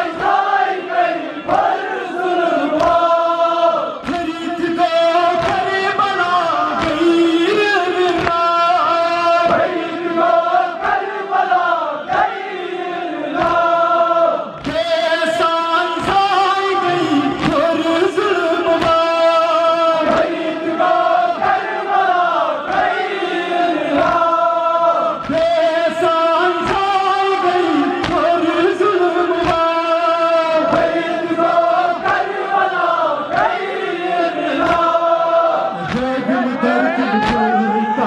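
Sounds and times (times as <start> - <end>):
men singing lament: 0.0 - 38.0
chest-beating slaps: 2.8 - 3.2, 4.0 - 4.3, 5.2 - 8.6, 13.3 - 13.8, 14.5 - 15.0, 17.3 - 17.7, 18.7 - 19.3, 20.0 - 21.8, 22.7 - 23.0, 23.9 - 24.4, 25.1 - 28.5, 29.4 - 29.8, 30.6 - 32.7, 34.6 - 35.0, 35.7 - 37.6.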